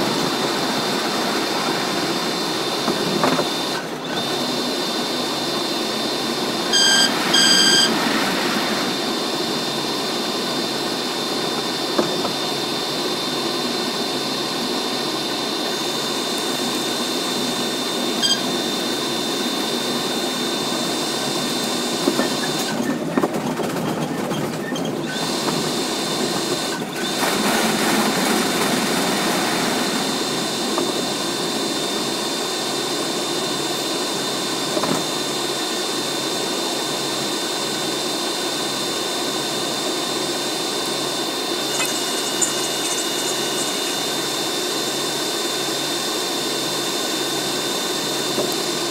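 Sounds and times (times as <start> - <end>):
short high tones: 6.7 - 8.0, 18.2 - 18.6, 41.7 - 44.4
thin high whine: 17.3 - 19.7, 41.6 - 45.4
subway train rattling clatter: 22.4 - 25.1.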